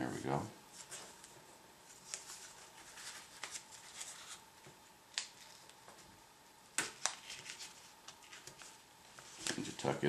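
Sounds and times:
paper crinkles: 0:00.8 - 0:04.4, 0:06.8 - 0:10.0
paper rustling: 0:00.8 - 0:04.4, 0:06.8 - 0:10.0.

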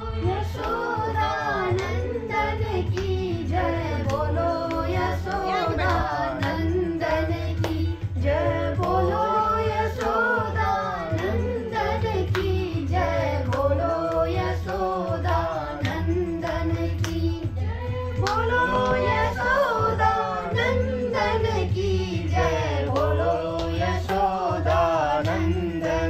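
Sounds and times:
hands clapping: 0:00.6 - 0:03.2, 0:04.0 - 0:06.8, 0:07.5 - 0:08.1, 0:09.9 - 0:12.8, 0:13.4 - 0:17.5, 0:18.2 - 0:20.6, 0:22.4 - 0:26.0
woman singing folk song: 0:02.8 - 0:11.4.

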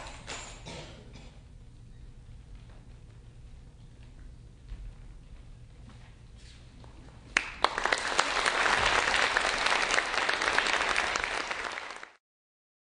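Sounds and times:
audience applause: 0:07.4 - 0:12.2.

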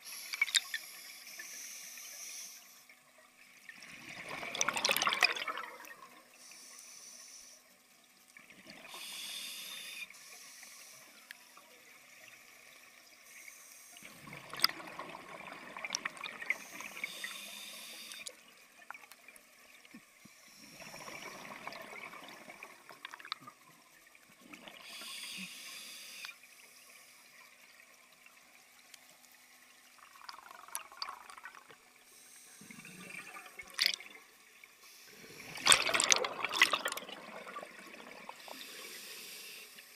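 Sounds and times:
regulator hissing inhales: 0:00.0 - 0:02.9, 0:06.4 - 0:07.7, 0:08.9 - 0:11.6, 0:16.5 - 0:18.3, 0:24.8 - 0:26.4, 0:38.4 - 0:39.9
bubbling exhaled air: 0:35.2 - 0:39.4.

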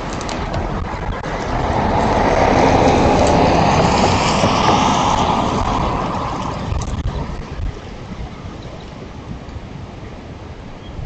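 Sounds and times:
car driving past: 0:01.0 - 0:06.8.

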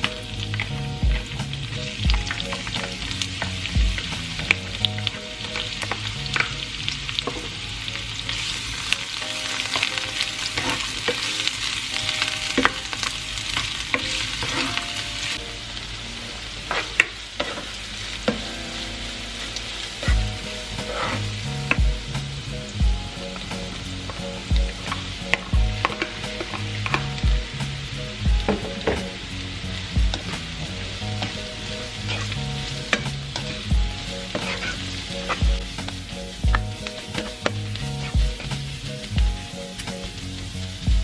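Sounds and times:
garlic and onion sizzling in oil: 0:00.0 - 0:41.0
spatula scraping and tapping pan: 0:16.7 - 0:18.5, 0:20.0 - 0:21.9, 0:24.8 - 0:27.2, 0:32.0 - 0:33.7, 0:34.3 - 0:38.7.

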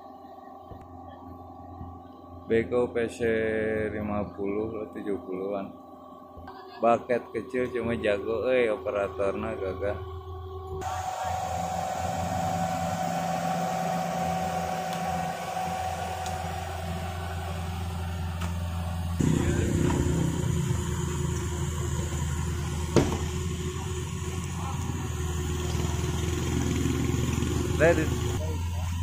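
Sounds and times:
diesel engine running: 0:08.1 - 0:29.0.

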